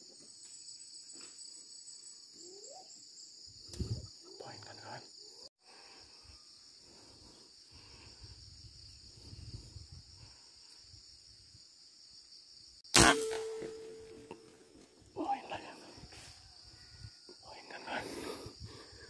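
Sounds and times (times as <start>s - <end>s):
insects droning: 0.0s - 19.0s
rifle shot with ringing: 12.9s - 14.5s.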